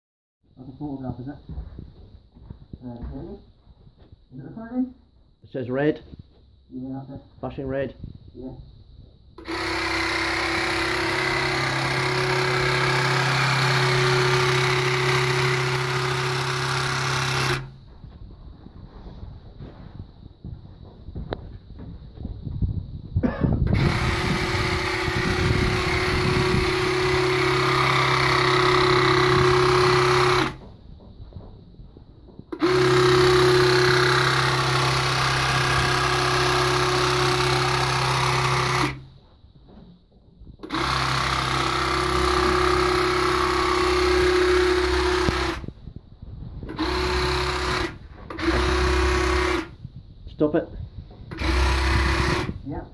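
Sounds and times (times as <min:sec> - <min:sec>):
sprayer pump humming: 0:09.4 - 0:17.8, 0:23.7 - 0:30.7, 0:32.5 - 0:39.1, 0:40.6 - 0:45.6, 0:46.7 - 0:49.7, 0:51.2 - 0:52.6.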